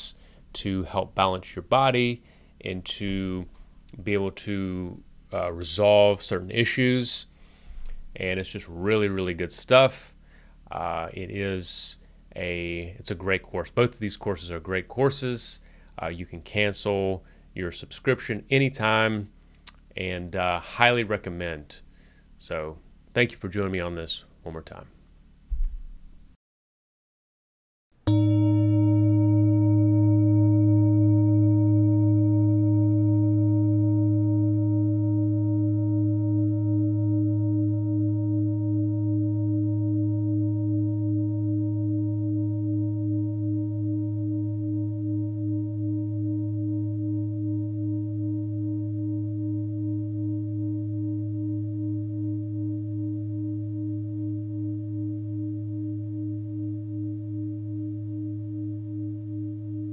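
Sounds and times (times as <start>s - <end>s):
singing bowl ringing: 28.1s - 59.9s.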